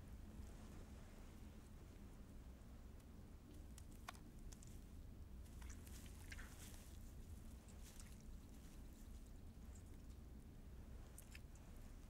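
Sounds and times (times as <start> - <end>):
low steady hum: 0.0 - 12.0
wet squelches: 5.4 - 10.2.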